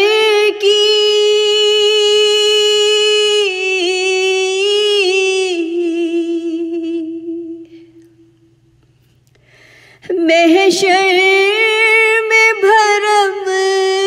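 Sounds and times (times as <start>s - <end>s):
woman singing unaccompanied: 0.0s - 7.8s, 10.0s - 14.0s.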